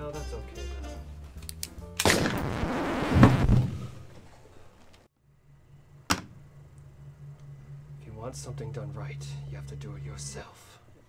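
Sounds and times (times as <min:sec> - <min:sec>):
sharp crack: 0:01.4 - 0:04.1.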